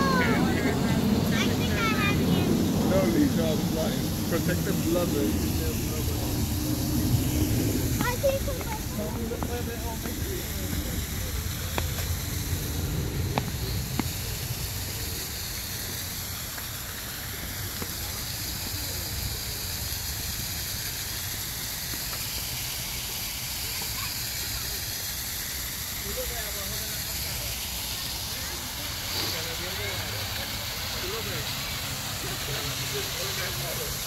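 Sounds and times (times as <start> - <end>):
running water rushing: 0.0 - 34.0
sharp ticks: 11.5 - 14.6.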